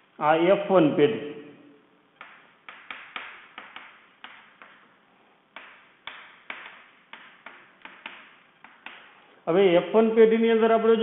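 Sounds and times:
chalk tapping on a blackboard: 2.2 - 4.9, 5.5 - 9.2.

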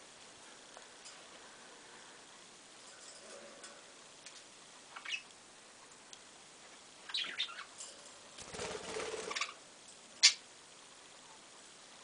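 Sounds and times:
bird wings fluttering: 8.4 - 9.6.

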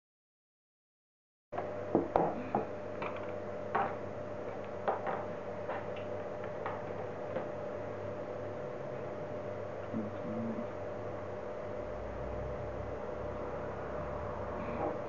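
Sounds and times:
steady background hum: 1.6 - 15.0.

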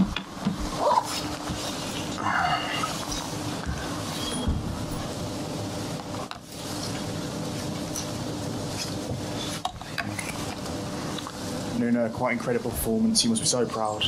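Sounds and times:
rustling and shuffling: 0.6 - 2.2, 5.8 - 11.5.

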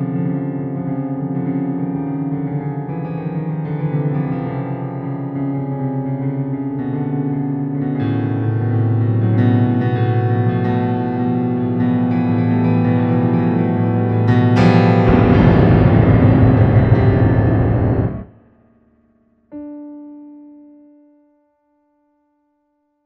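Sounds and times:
keyboard chords: 13.7 - 18.3
deep bass note: 14.8 - 18.3.

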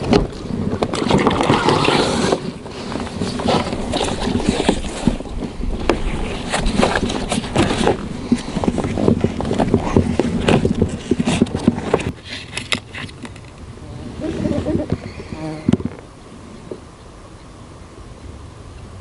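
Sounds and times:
gear knocking in inflatable boat: 0.0 - 13.5.

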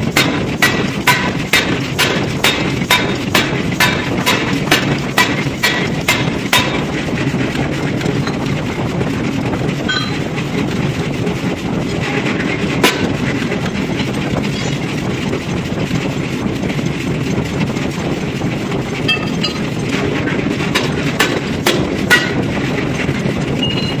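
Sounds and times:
forging press machinery drone: 0.0 - 24.0
sharp metal clanks: 9.9 - 10.3, 19.0 - 19.8, 20.7 - 22.4.

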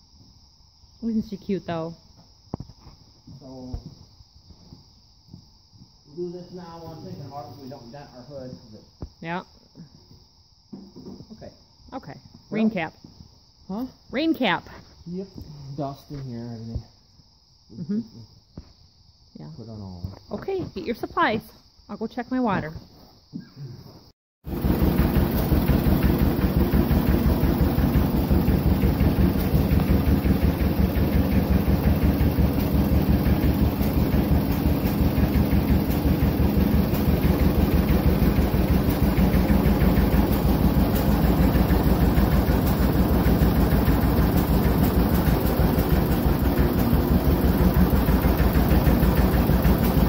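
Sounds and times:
tractor engine pulsing: 24.5 - 50.0.

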